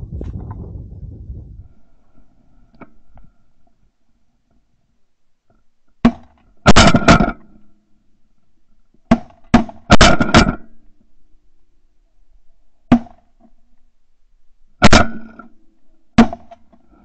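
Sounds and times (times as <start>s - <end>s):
shotgun blasts: 6.6s - 7.4s, 9.5s - 10.7s, 14.8s - 15.5s.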